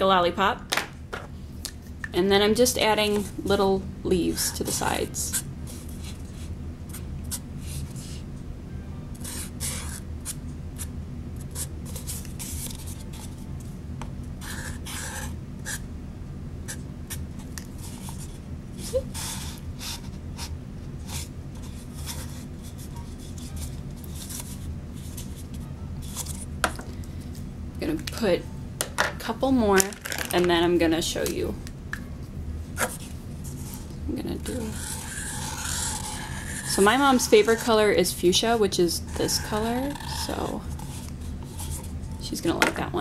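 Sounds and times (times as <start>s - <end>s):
steady low hum: 0.0s - 43.0s
marker squeaking on paper cup: 9.2s - 10.0s, 14.4s - 15.8s, 34.5s - 37.7s, 39.0s - 42.2s.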